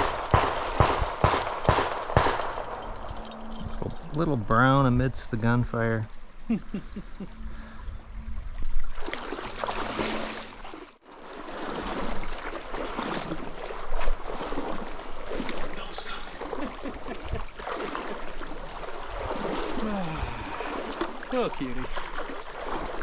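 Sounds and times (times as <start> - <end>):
stream water rushing: 8.2 - 23.0.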